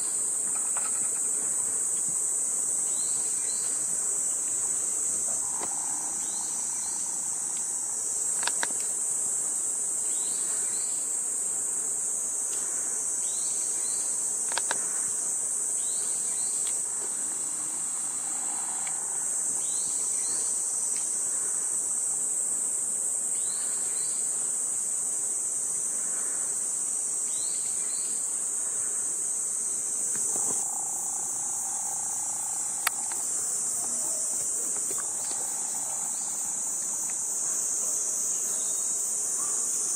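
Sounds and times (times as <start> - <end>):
high-pitched insect chorus: 0.0 - 39.9
sharp clicks: 8.3 - 8.9.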